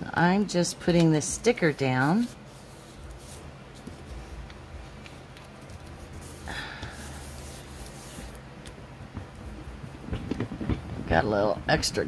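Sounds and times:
low steady hum: 0.0 - 12.0
sticker rubbed on plastic bag: 1.6 - 4.2, 5.5 - 8.4.

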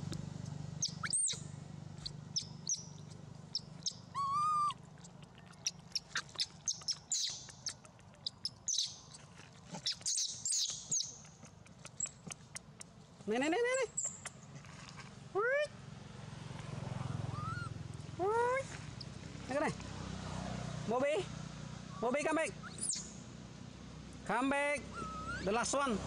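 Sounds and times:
animal chirps and squeaks: 0.8 - 1.4, 2.0 - 12.8, 13.7 - 14.5, 17.3 - 17.7, 22.6 - 23.2, 24.9 - 25.7.

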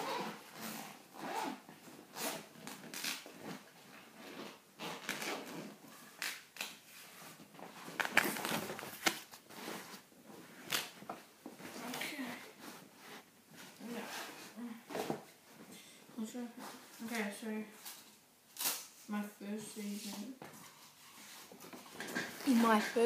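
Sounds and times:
zip being pulled: 0.0 - 3.2
fabric and gear rustling: 0.0 - 6.1, 6.9 - 18.0, 19.8 - 23.0.

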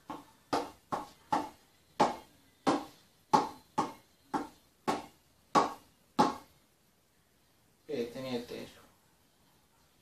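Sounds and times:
hand slapping spinning ball: 0.0 - 6.5.

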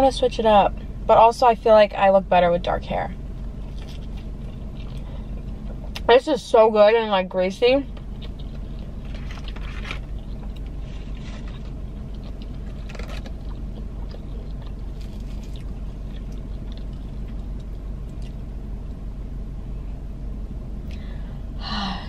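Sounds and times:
car low hum: 0.0 - 22.0
faint crunches: 3.6 - 6.0, 7.9 - 18.4
person chewing: 3.6 - 6.0, 8.0 - 18.4.

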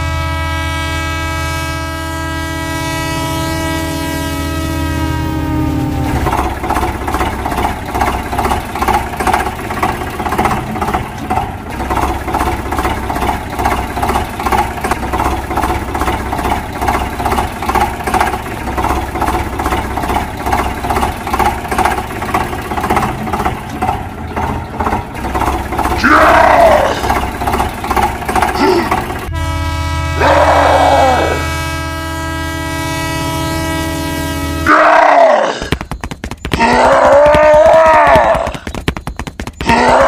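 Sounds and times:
toy tractor engine chugging: 6.0 - 29.3, 35.7 - 40.0.

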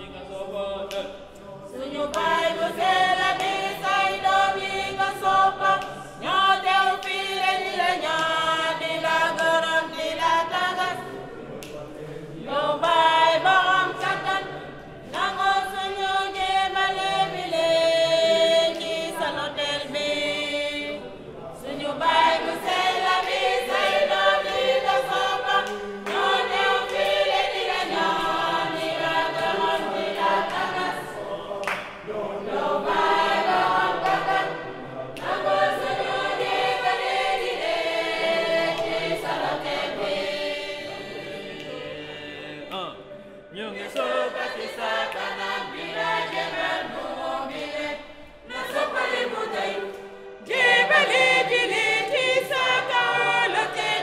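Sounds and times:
choir singing a hymn: 0.0 - 54.0.

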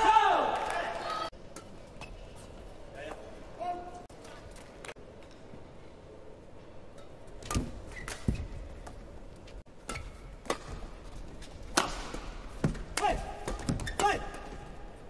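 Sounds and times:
badminton racket hitting shuttlecock: 9.8 - 14.6.

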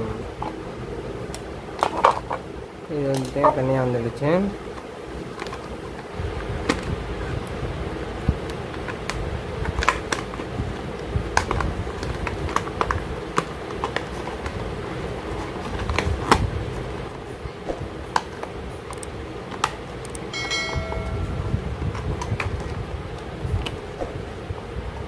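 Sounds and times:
steady low hum: 0.0 - 25.0
short chime: 20.4 - 21.7.

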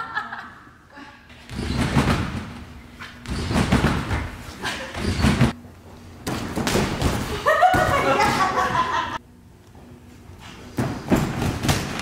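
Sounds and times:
heavy thuds on trampoline: 1.5 - 2.6, 3.2 - 5.6, 10.8 - 12.0.

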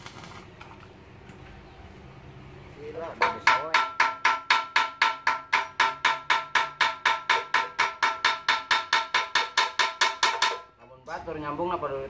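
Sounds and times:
rapid metal-on-metal clanks: 3.2 - 10.8.

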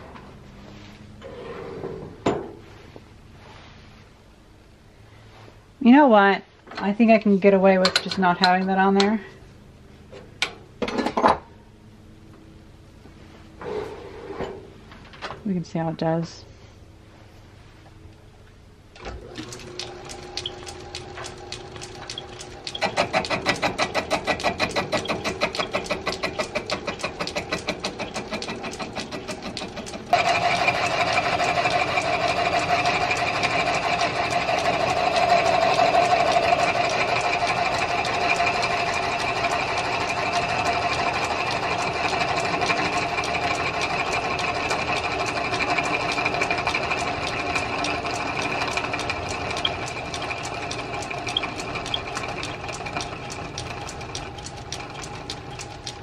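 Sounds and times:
metal lathe cutting wood: 19.3 - 56.0.

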